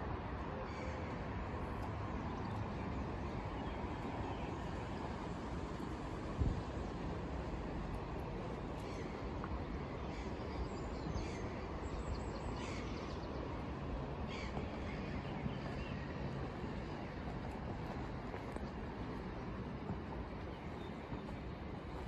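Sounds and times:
distant city noise: 0.0 - 22.0
wind: 0.0 - 22.0
birds calling: 10.0 - 17.3.

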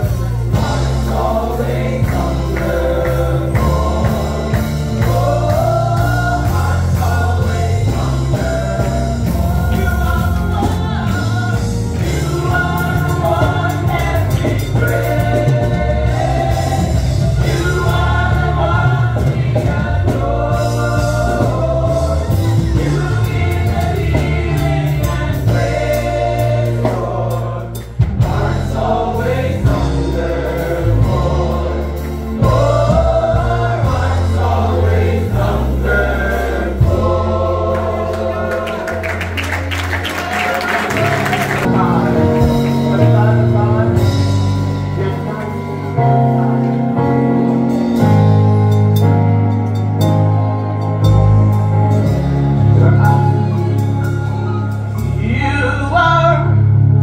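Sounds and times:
choir singing worship song: 0.0 - 49.1
band with strong bass line: 0.0 - 57.0.

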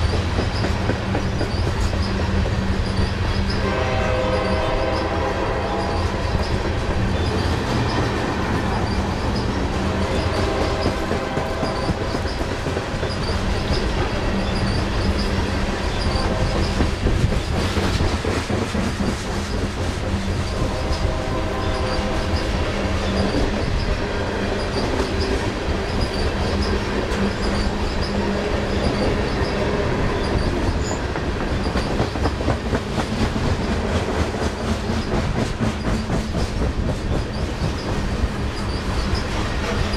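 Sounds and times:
wheel squeal: 0.0 - 3.6, 8.7 - 17.5, 24.6 - 32.1, 38.6 - 39.4
train wheels rumbling on rail: 0.0 - 39.9.

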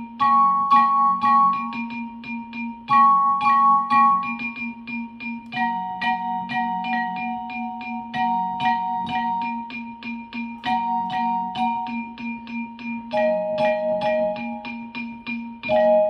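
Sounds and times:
digital piano playing: 0.0 - 16.0.

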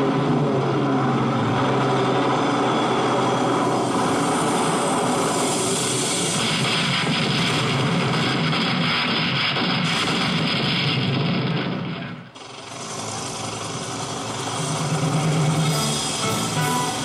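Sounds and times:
battle sound effects over loudspeakers: 6.1 - 17.0.

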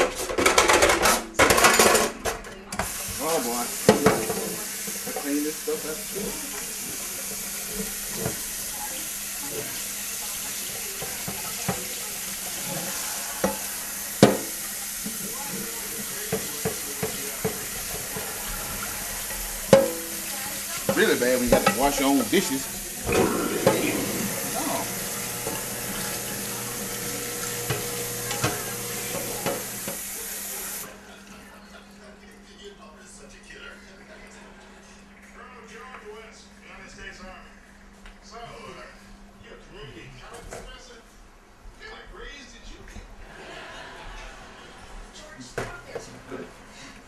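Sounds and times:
dishes clinking: 0.0 - 2.5, 3.9 - 5.3, 12.6 - 30.0
faucet running into sink: 2.8 - 31.4.

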